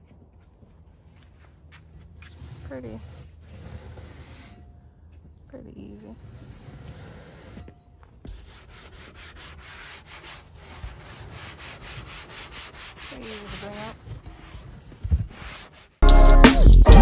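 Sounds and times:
sanding block rubbing: 2.2 - 4.6, 6.2 - 7.7, 8.3 - 16.0.

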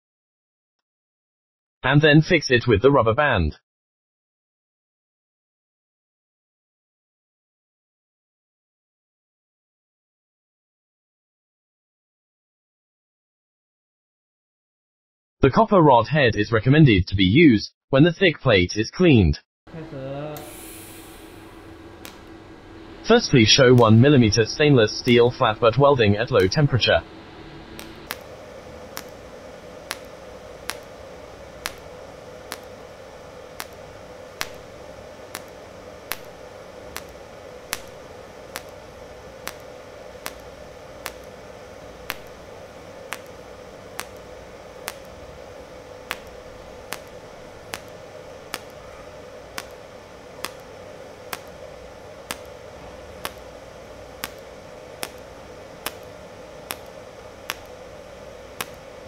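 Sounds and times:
welder hum: 19.7 - 59.0
welder arc clicks: 20.2 - 59.0.

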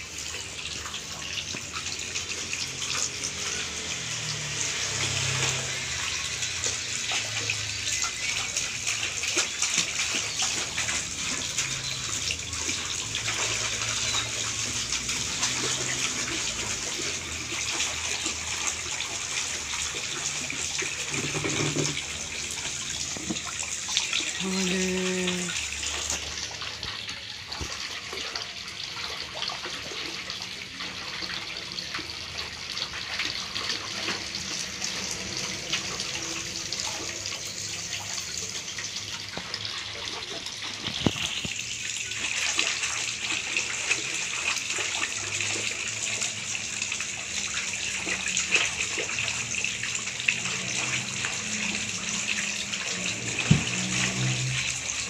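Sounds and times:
water splashing in a metal basin: 0.0 - 55.0
child vocal sounds: 24.4 - 25.6.

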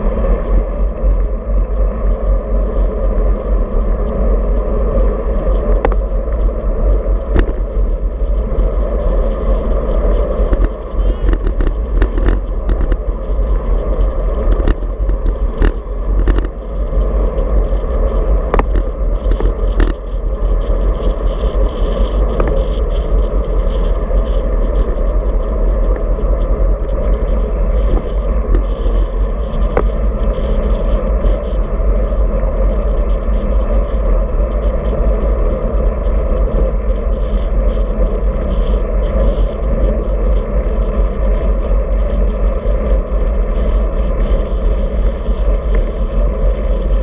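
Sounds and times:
bike clicks and rattles: 0.0 - 47.0
tyre and road noise: 0.0 - 47.0
wind buffeting microphone: 0.0 - 47.0.

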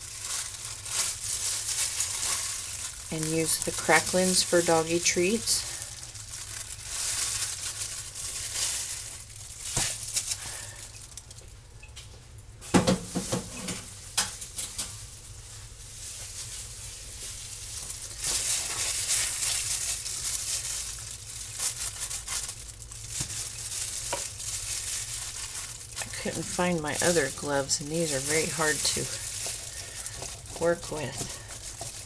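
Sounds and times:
plastic gloves crinkling: 0.0 - 32.0.

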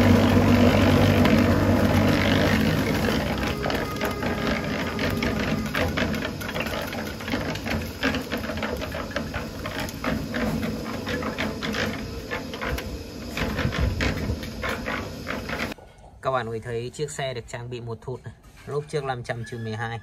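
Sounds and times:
concrete mixer drum turning: 0.0 - 15.8
low motor hum: 0.0 - 15.8
wet gravel clattering in drum: 0.0 - 15.8.

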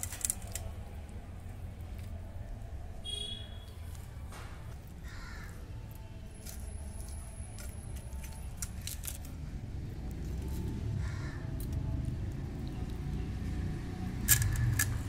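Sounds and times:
crow cawing: 5.0 - 5.6, 11.0 - 11.5.

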